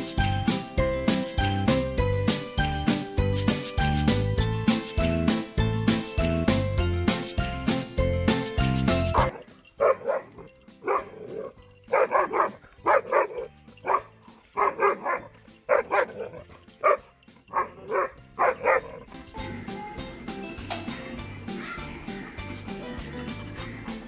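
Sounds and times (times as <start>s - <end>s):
dog barking: 9.2s - 19.0s.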